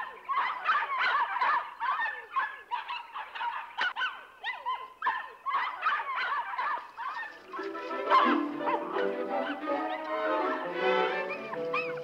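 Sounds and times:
puppies whimpering and yipping: 4.6s - 12.0s.

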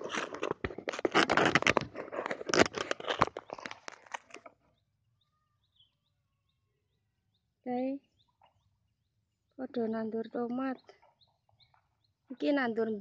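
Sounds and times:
microphone handling rustle: 0.0s - 4.4s.

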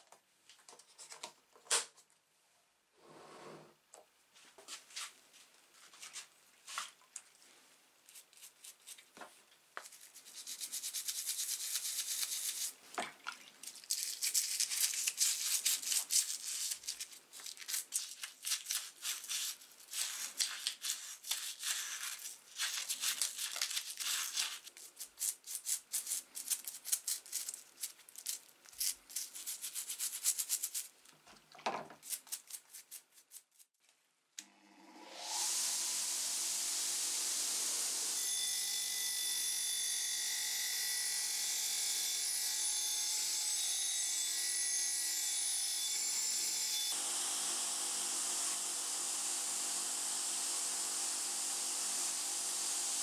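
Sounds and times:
toothbrush scrubbing metal: 9.8s - 12.8s, 13.7s - 30.9s, 32.0s - 33.7s.

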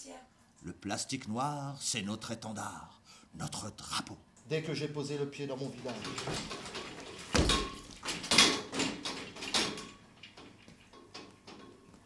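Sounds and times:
knocks and scraping: 5.9s - 12.0s.

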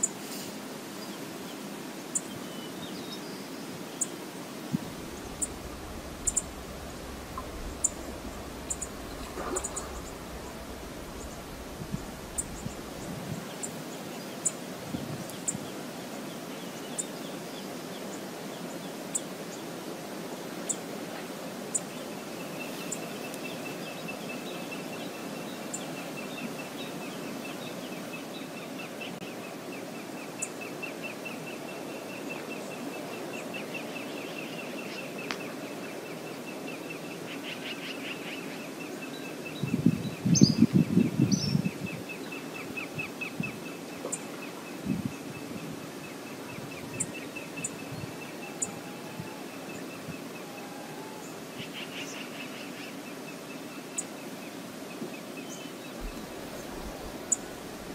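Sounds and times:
small birds chirping: 2.1s - 15.7s
steady background noise: 3.4s - 57.9s
loud low burst of noise: 4.7s - 13.5s.

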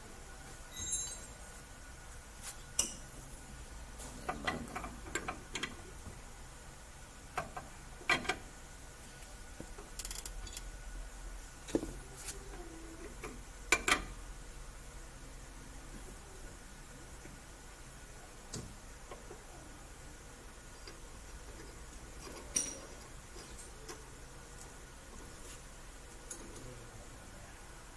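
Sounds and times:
light metallic clicks and clinks: 0.7s - 1.4s, 20.8s - 24.1s.

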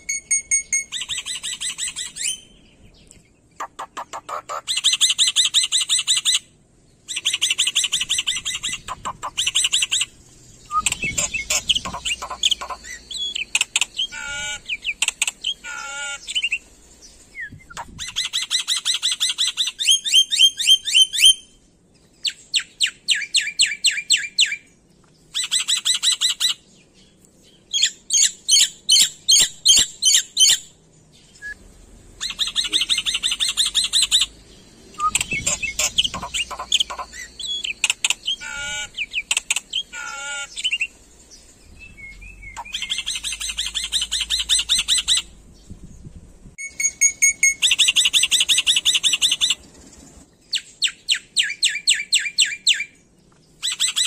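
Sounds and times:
bird whistling wavering phrases: 0.0s - 2.6s, 7.1s - 16.6s, 32.2s - 34.3s, 35.0s - 40.9s, 41.8s - 45.3s
bird singing rapid high notes: 0.0s - 2.9s, 7.1s - 16.7s, 32.2s - 45.4s.

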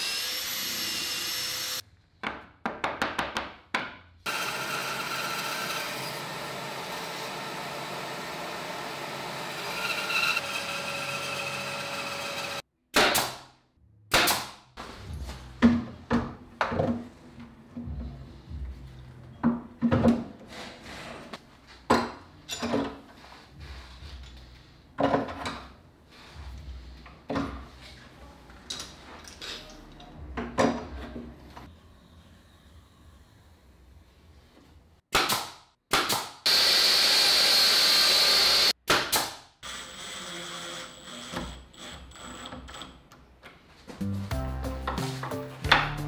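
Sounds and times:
bandsaw cutting wood: 0.0s - 1.8s, 4.3s - 12.6s, 36.5s - 38.8s
pneumatic nailer firing: 35.1s - 39.4s.

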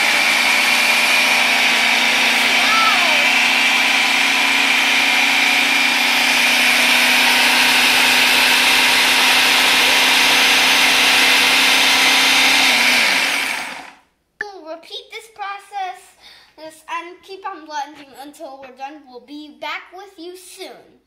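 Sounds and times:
food processor motor running: 0.0s - 14.0s.

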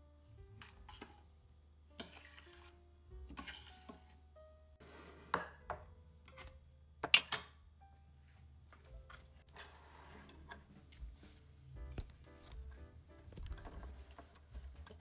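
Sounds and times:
metal spoon scraping a saucepan: 0.6s - 1.3s, 1.9s - 4.2s.

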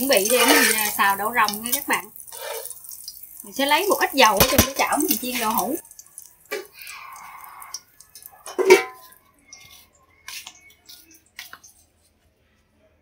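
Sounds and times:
metal spatula scraping wok: 0.0s - 2.8s, 8.5s - 11.9s.

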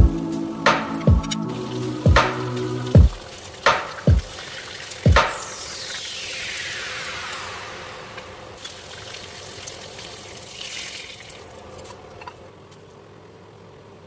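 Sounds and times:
chicken sizzling in hot oil: 1.5s - 11.5s.

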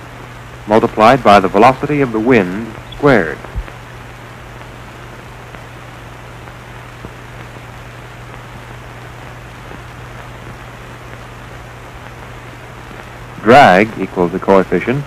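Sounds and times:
low hum: 0.0s - 14.4s
film soundtrack hiss: 0.0s - 15.0s.

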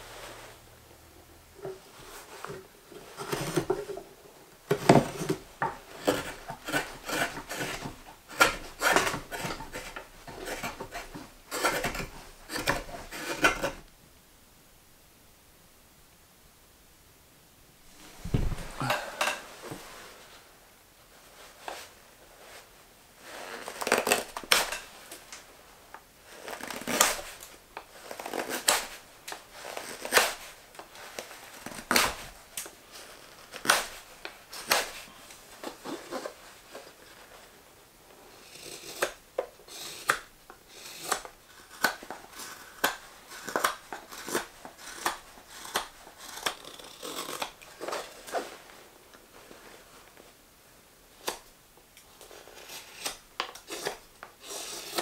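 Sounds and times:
knife carving wood shavings: 4.7s - 13.9s, 23.3s - 24.9s, 26.3s - 36.9s, 38.3s - 48.4s, 52.2s - 55.0s.

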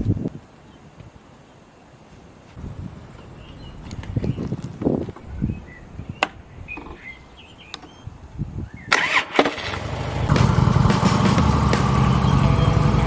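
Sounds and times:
clicks: 7.7s - 8.0s
starter cranking: 8.9s - 11.9s
motorcycle engine idling: 9.7s - 13.0s.

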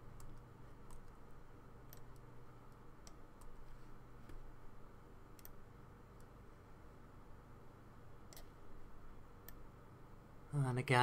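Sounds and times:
faint low hum: 0.0s - 11.0s
computer mouse clicks: 0.1s - 1.2s, 1.8s - 4.4s, 5.3s - 6.4s, 8.2s - 8.6s, 9.4s - 9.7s.

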